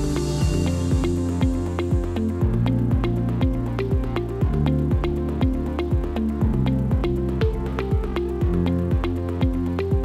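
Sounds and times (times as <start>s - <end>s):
kick drum beat: 0.0s - 10.0s.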